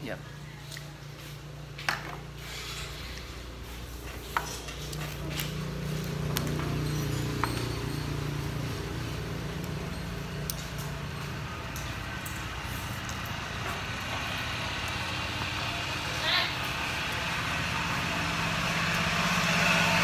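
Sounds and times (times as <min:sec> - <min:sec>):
low motor hum: 0:02.4 - 0:20.0
utensils clinking against dish: 0:04.0 - 0:12.5.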